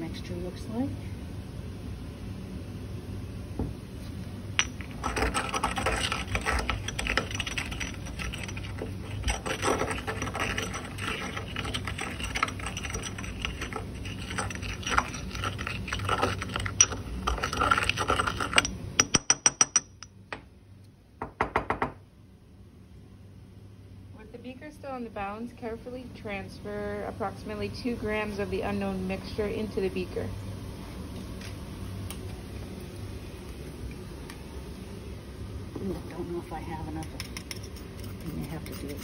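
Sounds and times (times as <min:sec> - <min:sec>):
pestle grinding in mortar: 0:04.6 - 0:19.8, 0:37.0 - 0:39.0.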